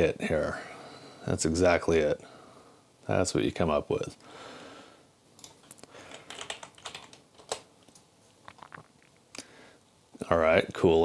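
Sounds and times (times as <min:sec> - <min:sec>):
keyboard typing: 0:05.4 - 0:08.8.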